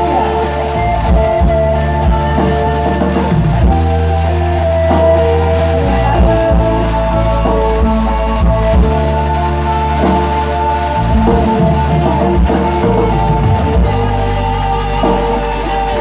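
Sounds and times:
loud music with heavy bass: 0.0s - 16.0s.

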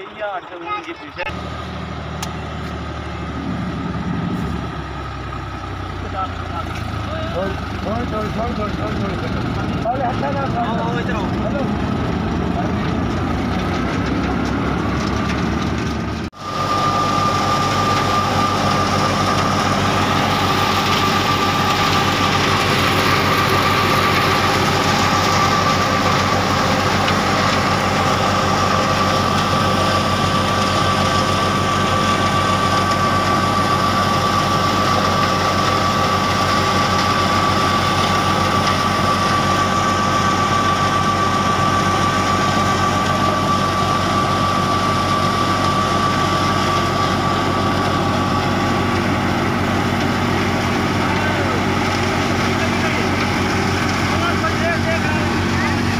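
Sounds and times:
thresher machinery running: 0.0s - 55.9s
tractor diesel engine hum: 0.0s - 55.9s
high whine: 15.0s - 55.9s.

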